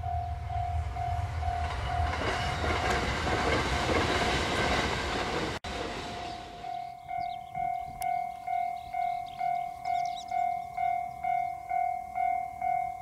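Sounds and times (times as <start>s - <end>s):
low rumble: 0.0s - 6.5s
train wheels on rails: 0.0s - 13.0s
level crossing bell ringing: 6.6s - 13.0s.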